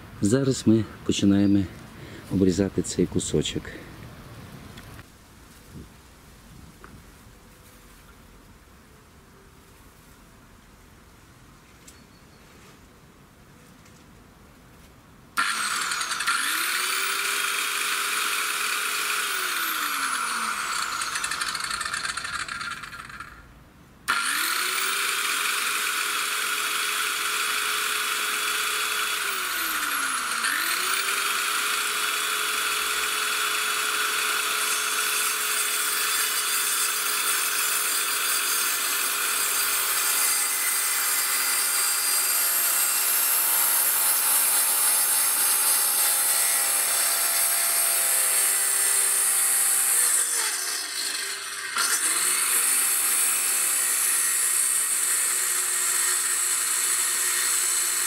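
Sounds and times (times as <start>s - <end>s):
circular saw cutting wood: 15.4s - 23.5s, 24.1s - 58.0s.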